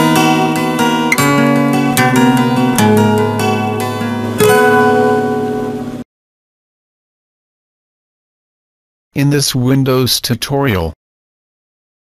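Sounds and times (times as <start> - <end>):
plucked string instrument notes: 0.0 - 6.0.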